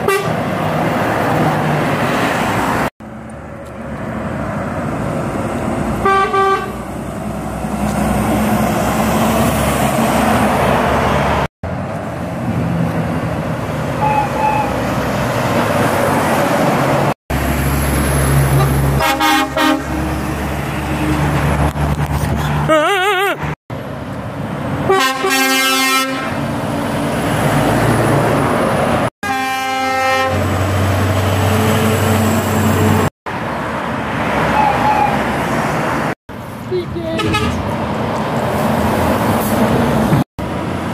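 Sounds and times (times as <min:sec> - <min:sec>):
truck horn toots: 0:00.0 - 0:00.4, 0:06.0 - 0:06.8, 0:14.0 - 0:14.8, 0:18.5 - 0:20.0, 0:24.8 - 0:26.4, 0:29.2 - 0:30.5, 0:37.2 - 0:37.6
truck engine drone: 0:00.0 - 0:40.9
vehicles passing on road: 0:00.0 - 0:40.9.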